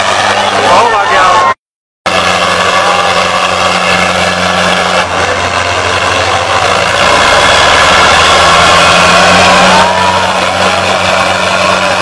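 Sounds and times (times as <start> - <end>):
tractor diesel engines straining: 0.0 - 12.0.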